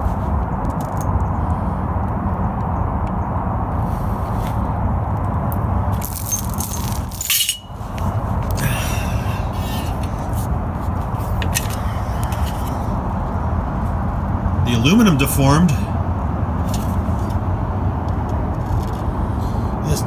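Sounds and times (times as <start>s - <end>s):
steady low rumble: 0.0s - 20.0s
metal pieces clinking and rattling: 6.0s - 7.7s.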